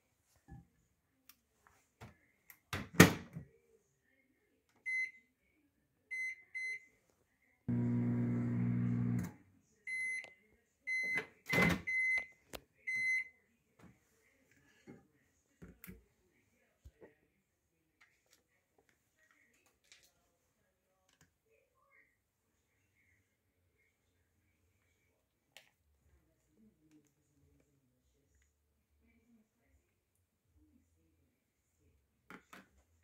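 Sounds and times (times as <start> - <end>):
microwave oven humming: 7.7 - 9.4.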